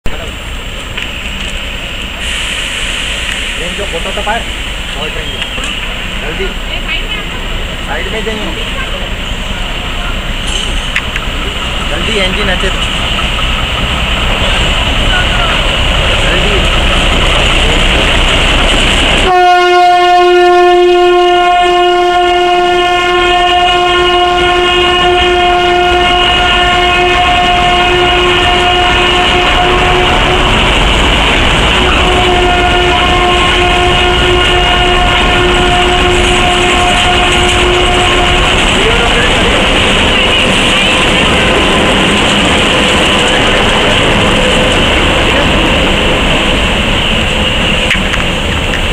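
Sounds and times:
passing train running noise: 0:00.0 - 0:48.9
locomotive horn blast: 0:19.2 - 0:45.6.

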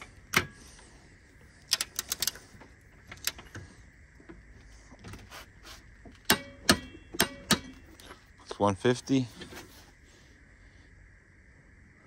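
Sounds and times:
torque wrench metal clicks: 0:01.6 - 0:02.5.

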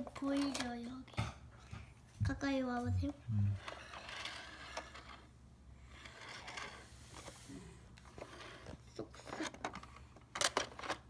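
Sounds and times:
plastic toy truck clicks and scrapes: 0:00.0 - 0:00.8, 0:03.6 - 0:05.3, 0:05.9 - 0:07.3, 0:08.0 - 0:11.0
low steady hum: 0:00.0 - 0:11.0.

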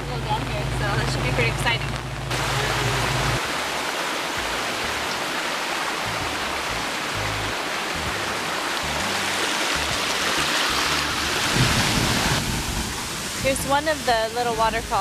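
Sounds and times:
stream water rushing over rocks: 0:00.0 - 0:15.0
background music with bass line: 0:04.4 - 0:05.4, 0:06.0 - 0:15.0.

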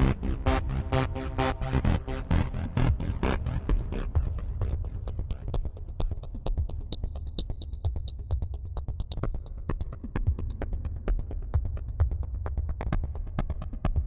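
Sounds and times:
deep synthesizer bass: 0:00.0 - 0:07.0.

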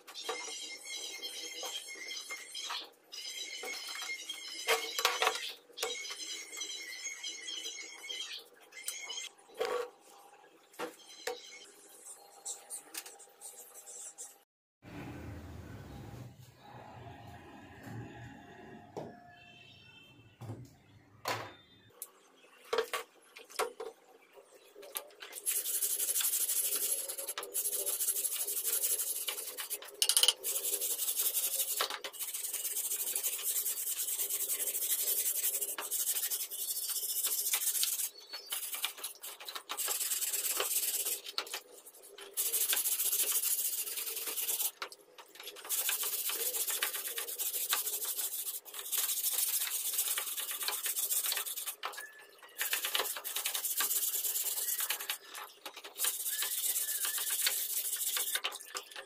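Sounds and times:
wooden block scraping steel blade: 0:45.6 - 0:58.4.

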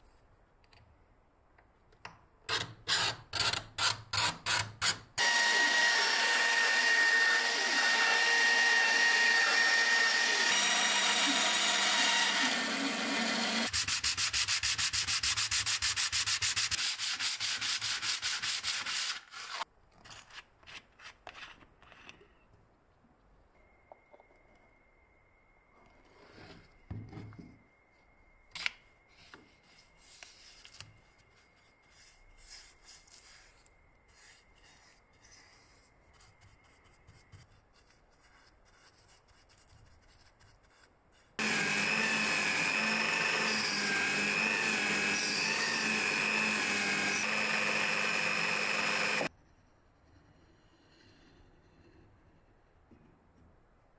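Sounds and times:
power tool running: 0:05.2 - 0:13.7, 0:41.4 - 0:49.3.

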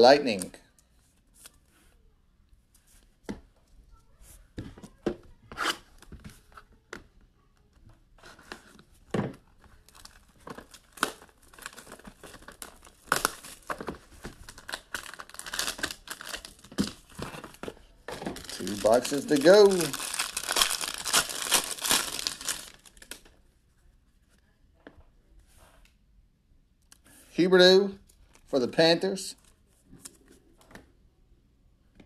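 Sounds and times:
plastic wrapping tearing and crinkling: 0:09.8 - 0:17.6, 0:18.4 - 0:23.3.

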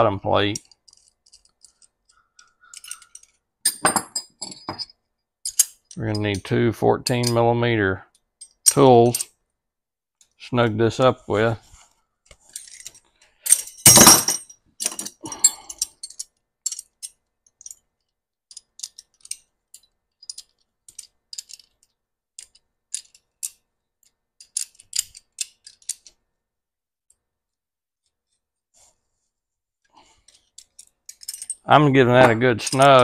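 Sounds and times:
wrenches clicking on a bolt: 0:00.5 - 0:03.4, 0:30.3 - 0:33.0.

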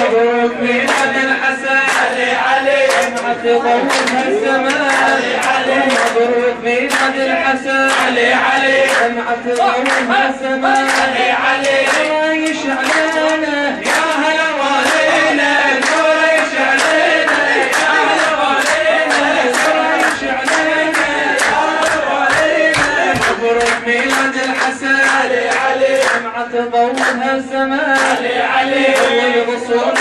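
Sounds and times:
men chanting together: 0:00.0 - 0:30.0
rhythmic hand-clapping: 0:00.0 - 0:30.0.

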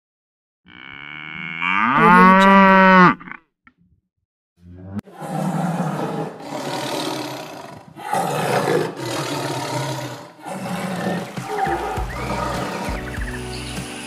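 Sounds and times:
tiger roaring: 0:04.8 - 0:13.2.

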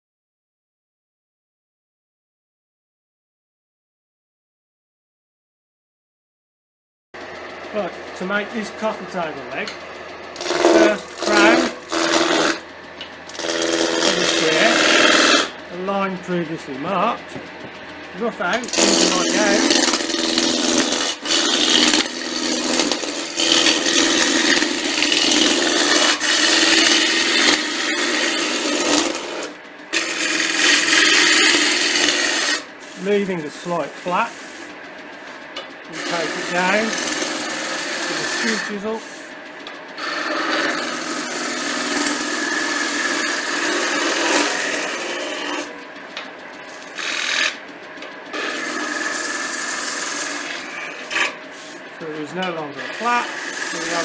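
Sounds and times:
wood lathe humming: 0:07.2 - 0:54.0
gouge shaving wood: 0:10.4 - 0:12.7, 0:13.3 - 0:16.2, 0:18.6 - 0:34.8, 0:35.9 - 0:39.4, 0:40.0 - 0:45.8, 0:46.6 - 0:47.6, 0:48.3 - 0:54.0.

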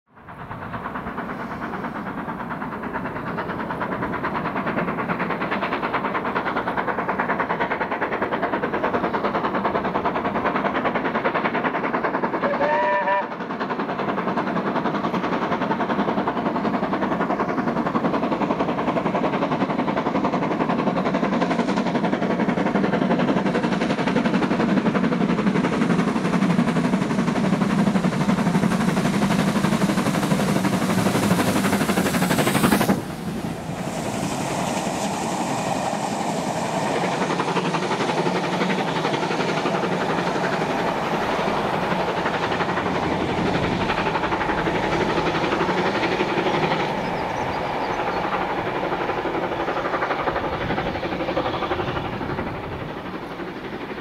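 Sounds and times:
steam locomotive exhaust: 0:00.1 - 0:54.0
steam whistle blast: 0:12.4 - 0:13.3.

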